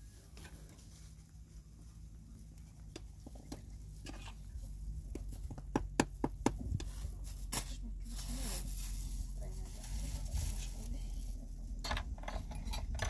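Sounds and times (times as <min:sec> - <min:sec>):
low steady rumble: 0:00.0 - 0:13.0.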